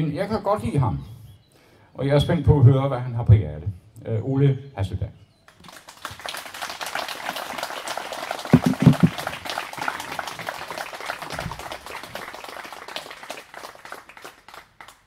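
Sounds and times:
audience clapping: 5.5s - 15.0s
low thumps: 8.5s - 9.3s.

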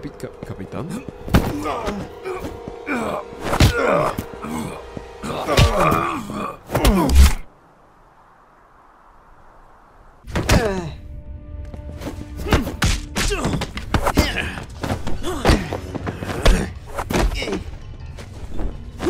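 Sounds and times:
music with thuds and hits: 1.2s - 2.6s, 11.8s - 19.0s.

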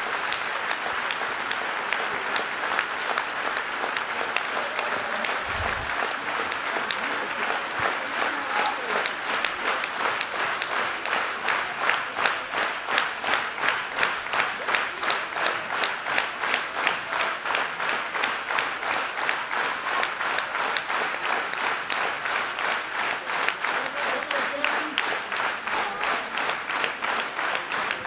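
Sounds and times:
crowd clapping in unison: 0.0s - 28.0s
hiss of general applause: 0.0s - 28.0s.

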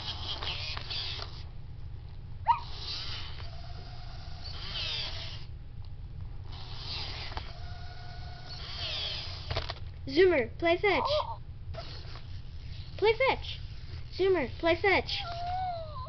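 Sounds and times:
toy robot motors whirring: 0.0s - 1.5s, 2.5s - 5.5s, 6.4s - 9.9s, 11.1s - 15.8s.

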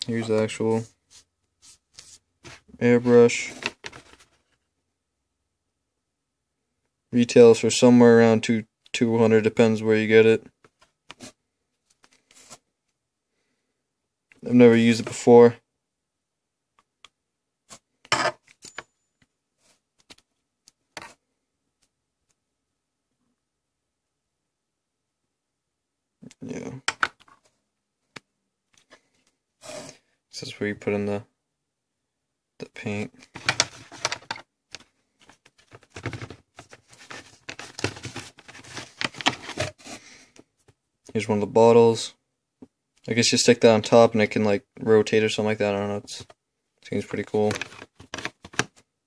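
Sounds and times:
cardboard and paper rustling: 1.6s - 4.6s, 33.2s - 40.2s, 47.2s - 48.8s
metal and plastic parts clattering: 33.2s - 34.4s, 35.2s - 39.8s, 47.4s - 48.7s.

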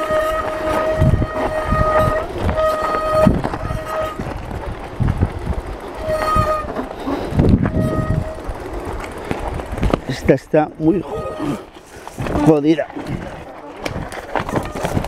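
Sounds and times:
bike brakes squealing: 0.0s - 4.2s, 6.0s - 8.6s, 10.8s - 11.7s
bike rattling over stones: 0.0s - 15.0s.

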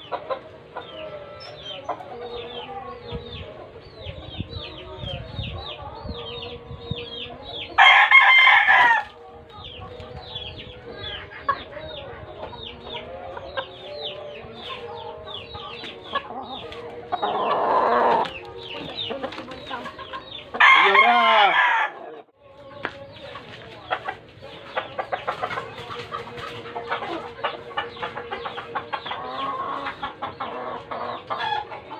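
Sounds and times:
roosters crowing: 5.5s - 31.9s.

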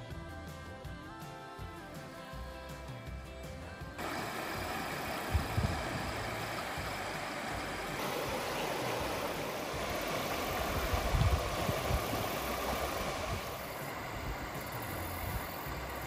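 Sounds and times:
creek rushing over stones: 4.0s - 16.0s
low rumbling: 4.0s - 16.0s.

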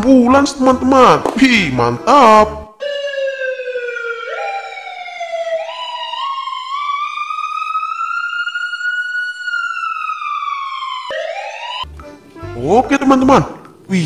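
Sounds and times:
ambulance siren wailing: 2.4s - 13.2s.

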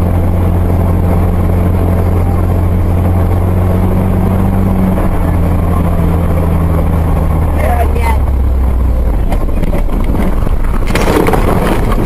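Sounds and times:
car engine and tyres droning: 0.0s - 12.0s.

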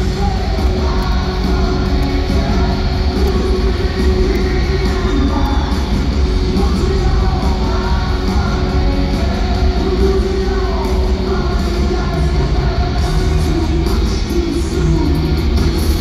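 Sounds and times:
distorted electric guitars: 0.0s - 16.0s
pounding drums: 0.0s - 16.0s
singing through loudspeakers: 0.0s - 16.0s.

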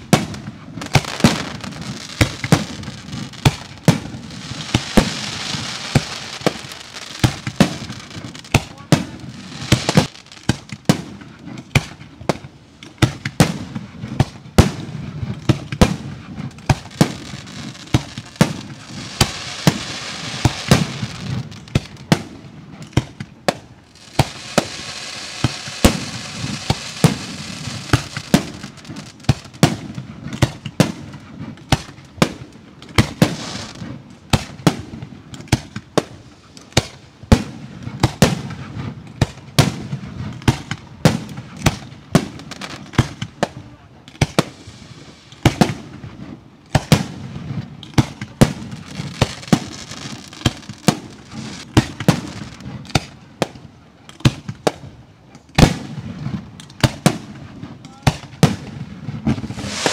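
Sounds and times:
fireworks bangs: 0.0s - 59.9s
fireworks crackling hiss: 0.0s - 59.9s.

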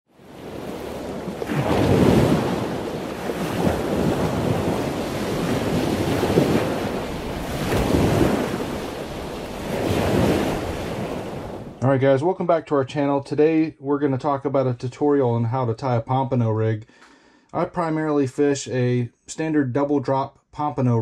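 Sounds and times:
waves washing in: 0.1s - 11.8s
wind rumbling on microphone: 0.1s - 11.8s.

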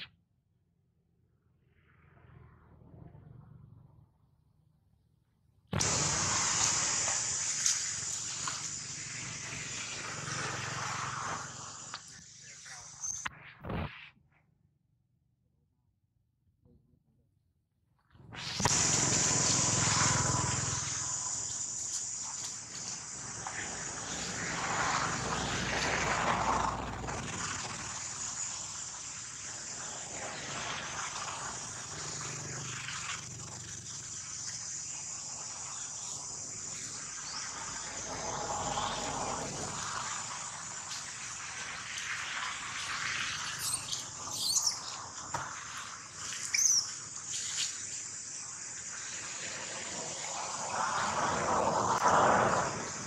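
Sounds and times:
insects buzzing: 5.8s - 13.2s, 18.6s - 53.0s
rushing noise: 5.8s - 13.9s, 18.4s - 53.0s
sharp high chirps and clicks: 11.7s - 13.4s, 43.4s - 49.0s.

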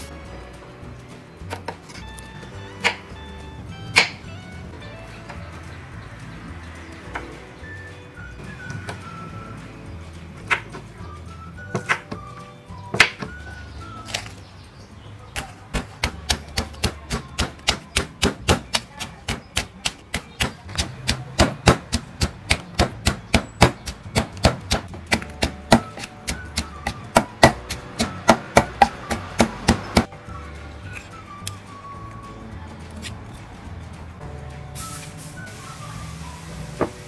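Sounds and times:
pestle pounding in wooden mortar: 15.3s - 30.1s
knife chopping on wooden board: 15.4s - 30.1s.

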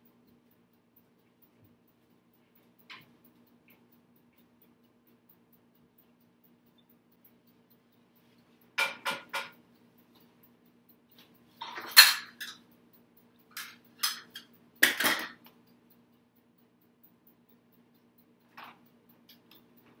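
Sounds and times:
pots and utensils clinking: 11.6s - 12.6s, 13.6s - 15.4s.

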